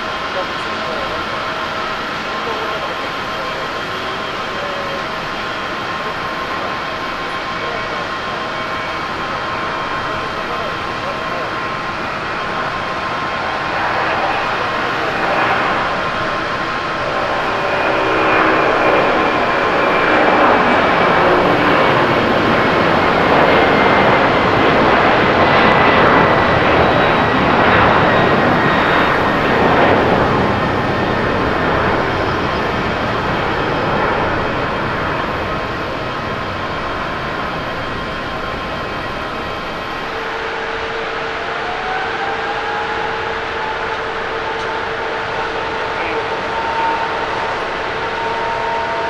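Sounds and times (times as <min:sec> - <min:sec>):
jet engine whining tones: 0:00.0 - 0:49.0
jet engines roaring at takeoff: 0:00.0 - 0:49.0.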